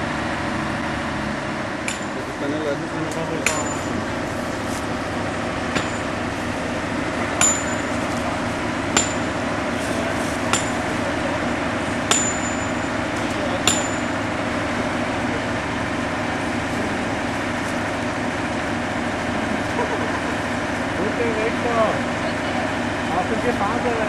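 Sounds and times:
engine drone: 0:00.0 - 0:24.0
hammer clinking on metal: 0:01.9 - 0:02.2, 0:03.4 - 0:04.0, 0:05.7 - 0:06.2, 0:07.4 - 0:08.2, 0:08.9 - 0:09.4, 0:10.5 - 0:11.0, 0:12.1 - 0:13.0, 0:13.6 - 0:14.2.

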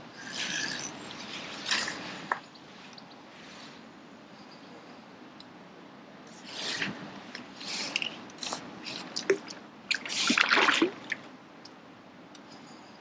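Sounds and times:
fish splashing in water: 0:07.8 - 0:11.3.

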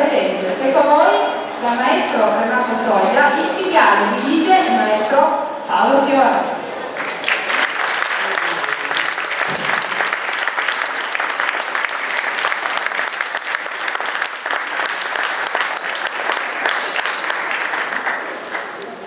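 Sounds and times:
audience applauding: 0:06.9 - 0:19.0.

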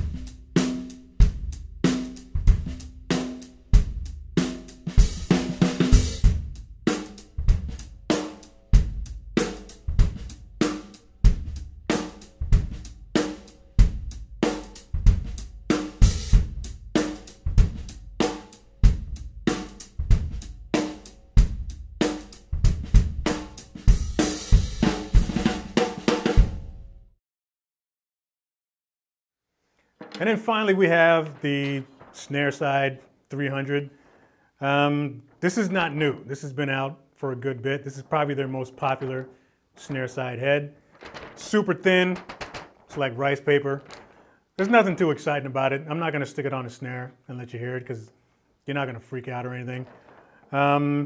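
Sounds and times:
bass drum: 0:00.0 - 0:00.6, 0:01.2 - 0:03.2, 0:03.8 - 0:08.0, 0:08.8 - 0:10.4, 0:11.3 - 0:13.1, 0:13.8 - 0:18.1
snare drum cracks: 0:30.0 - 0:33.0, 0:40.9 - 0:44.9.

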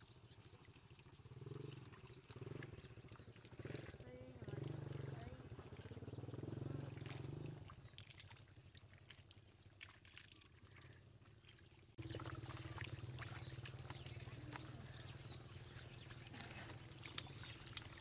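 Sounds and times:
hands splashing in muddy water: 0:01.5 - 0:18.0.

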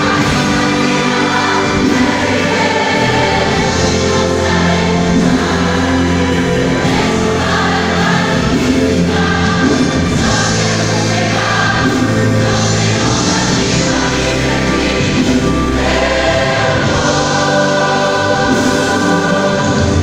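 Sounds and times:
choir singing gospel: 0:00.0 - 0:20.0
low bass notes: 0:00.0 - 0:20.0.

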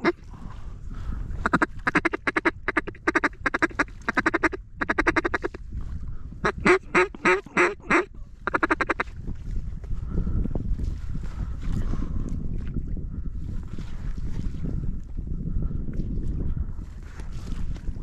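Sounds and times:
duck call quacks: 0:00.0 - 0:00.2, 0:01.4 - 0:05.6, 0:06.4 - 0:09.0.

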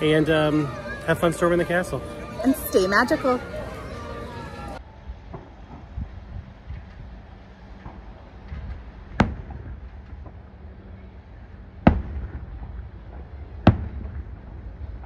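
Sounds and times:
low steady rumble: 0:04.7 - 0:15.0
fireworks bangs: 0:05.2 - 0:15.0.

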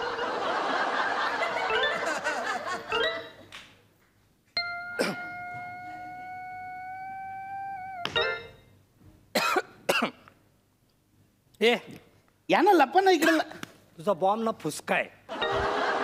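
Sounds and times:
studio audience laughter: 0:00.0 - 0:03.0, 0:15.3 - 0:16.0
steady held note: 0:04.6 - 0:08.4
stage music: 0:04.6 - 0:08.6.

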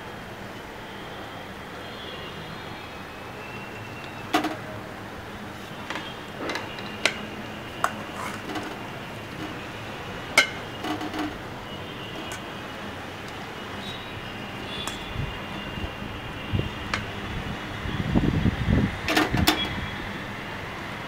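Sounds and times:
metal spatula clanking on pot: 0:04.4 - 0:04.6, 0:10.4 - 0:11.4.

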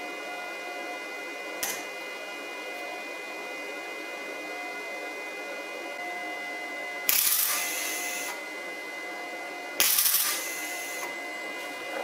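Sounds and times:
arc welding crackling hiss: 0:07.1 - 0:08.4, 0:09.8 - 0:11.1.

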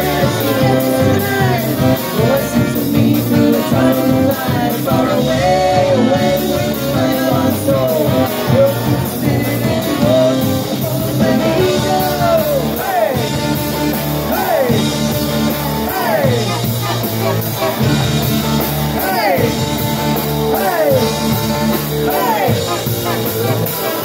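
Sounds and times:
woman singing: 0:00.0 - 0:08.2
drums: 0:00.0 - 0:24.0
electric guitar: 0:00.0 - 0:24.0
saxophones: 0:00.0 - 0:24.0.

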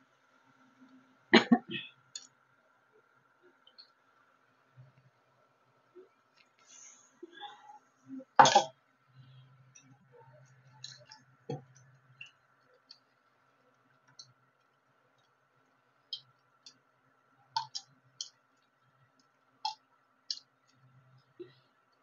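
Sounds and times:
faint steady hum: 0:00.0 - 0:22.0
liquid popping and crackling in oil: 0:09.5 - 0:22.0.

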